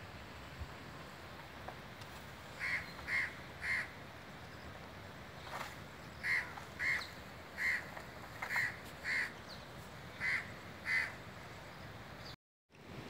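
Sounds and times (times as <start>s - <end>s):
faint outdoor background: 0.0s - 13.0s
bird calling: 2.5s - 4.7s, 5.4s - 12.4s.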